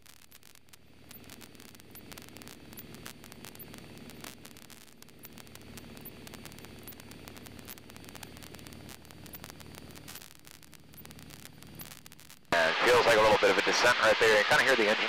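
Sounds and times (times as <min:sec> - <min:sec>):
static hiss with crackles: 0:00.0 - 0:15.0
aircraft engine droning: 0:12.6 - 0:15.0.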